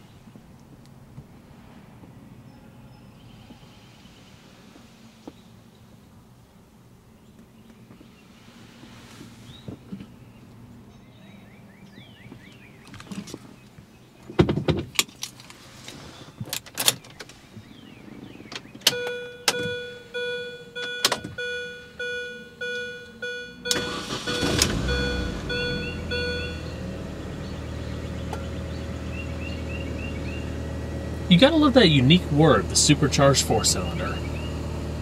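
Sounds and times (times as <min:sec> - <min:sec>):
car engine starting and idling: 0:15.0 - 0:35.0
repeating electronic chime: 0:21.4 - 0:26.8
supercharger whir: 0:22.7 - 0:35.0.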